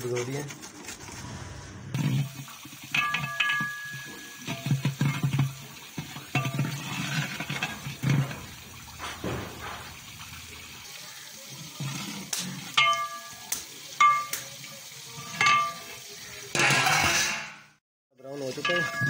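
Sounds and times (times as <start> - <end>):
ladle scraping a pot: 2.0 - 10.8
onions sizzling in a pot: 2.0 - 16.6
ringing metal clanks: 3.0 - 4.9, 6.3 - 10.4, 12.8 - 14.5, 15.4 - 16.0, 18.6 - 19.0.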